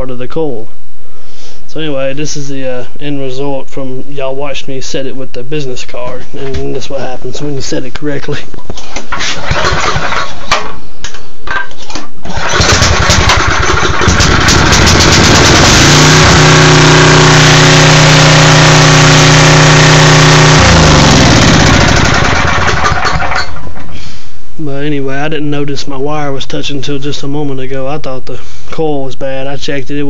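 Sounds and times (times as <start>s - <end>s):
generator engine starting and running: 9.1s - 10.8s, 12.2s - 24.2s.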